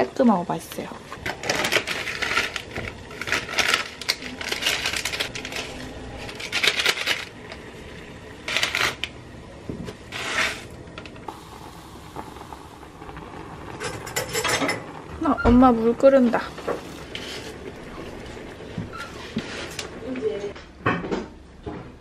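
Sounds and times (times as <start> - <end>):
pot boiling with steady hiss: 0.0 - 21.5
plastic packaging crinkling: 1.4 - 7.4.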